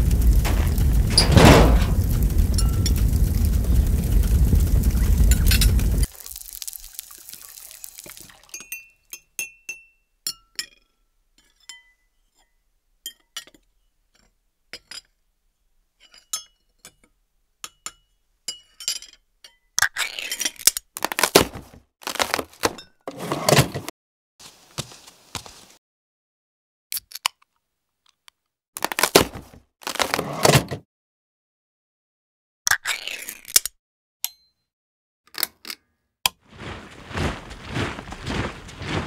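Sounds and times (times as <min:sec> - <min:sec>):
glassy clinks: 0:08.5 - 0:10.8.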